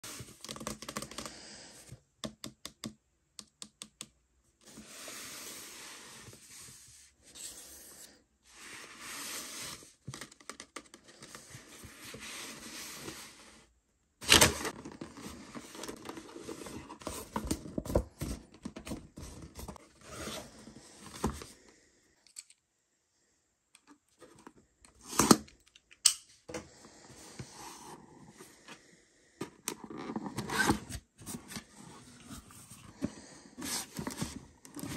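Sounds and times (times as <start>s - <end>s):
cardboard rubbing and scraping: 8.6s - 10.2s, 18.8s - 21.4s.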